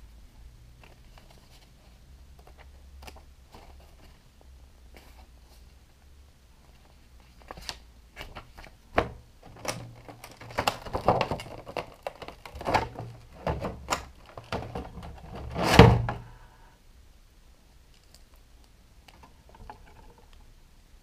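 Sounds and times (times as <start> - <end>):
plastic packaging crackling: 9.4 - 15.4.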